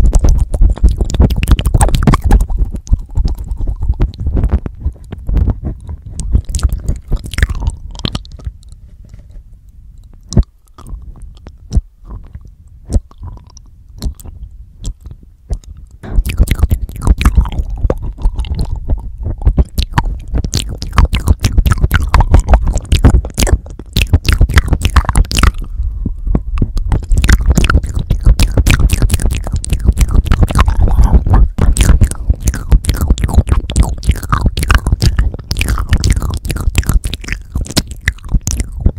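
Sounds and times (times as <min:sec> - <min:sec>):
lip clicks and smacks: 0:00.0 - 0:09.2, 0:10.0 - 0:25.8, 0:26.6 - 0:38.9
wet mouth sounds and licking: 0:00.0 - 0:09.3, 0:10.0 - 0:38.9
low thumps on microphone: 0:00.2 - 0:09.4, 0:14.0 - 0:35.5.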